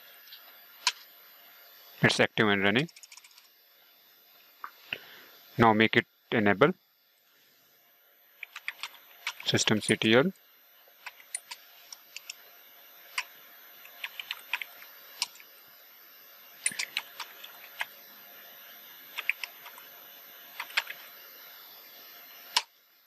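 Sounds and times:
computer keyboard typing: 8.4s - 9.8s, 13.2s - 15.4s, 16.6s - 17.9s, 19.1s - 19.8s, 20.6s - 21.0s.

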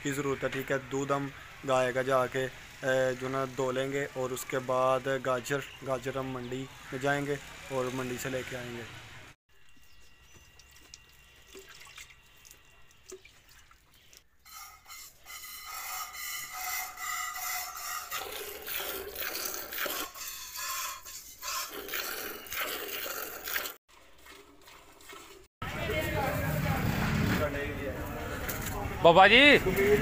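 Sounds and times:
milk squirting into metal bucket: 21.5s - 25.5s.

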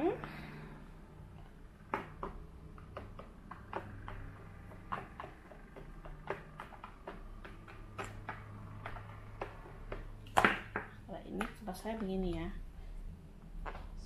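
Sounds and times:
plastic paddle tapping a mould: 1.9s - 12.4s.

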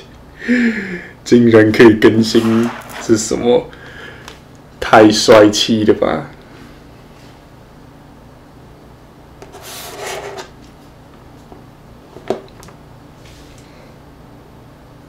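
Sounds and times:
hand scratching hair: 2.2s - 3.2s.

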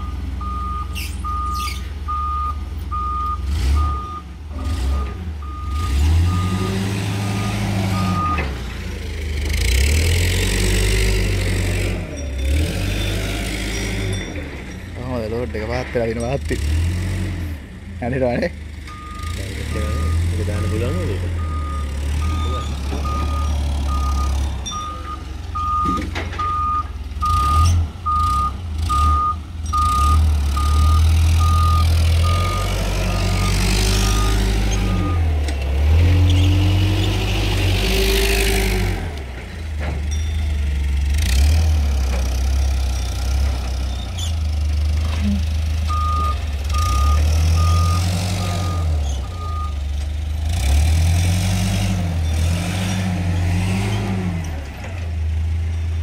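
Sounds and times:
reversing alarm beeping: 0.0s - 4.3s, 4.9s - 8.5s, 18.9s - 35.4s, 45.9s - 49.8s
forklift engine revving: 0.0s - 56.0s.

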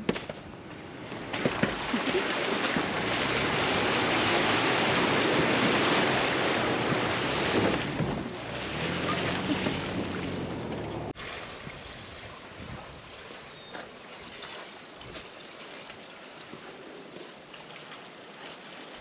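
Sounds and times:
water rushing and splashing: 0.7s - 19.0s
car engine running: 2.8s - 11.2s.

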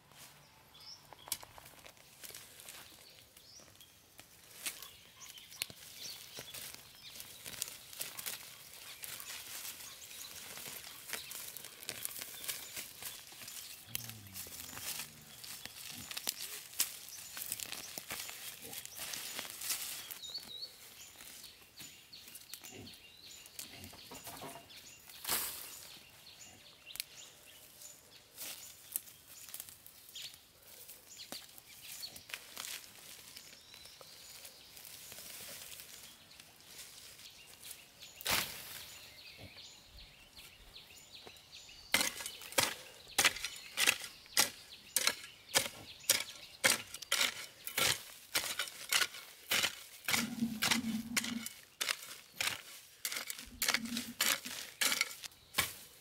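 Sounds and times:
weeds pulled from soil: 5.6s - 21.5s, 41.9s - 56.0s
hoe chopping into soil: 38.2s - 38.8s, 42.0s - 55.9s.

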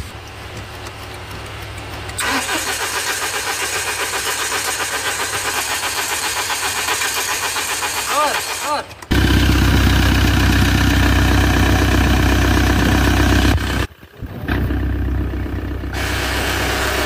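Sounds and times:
diesel engine starting and idling: 0.0s - 17.0s.

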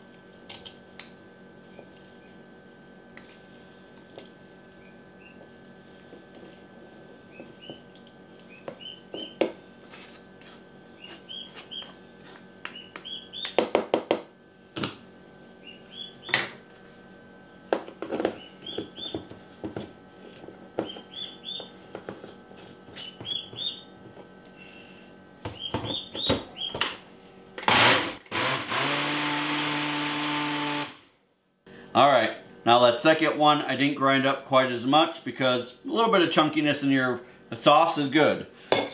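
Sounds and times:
blender running: 27.6s - 31.1s.

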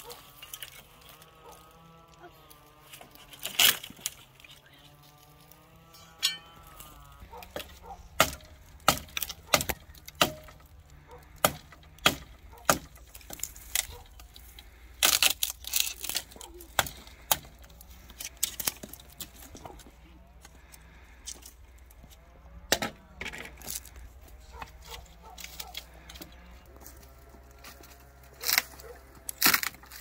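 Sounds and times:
sharp knocks and clinks: 6.0s - 6.6s.

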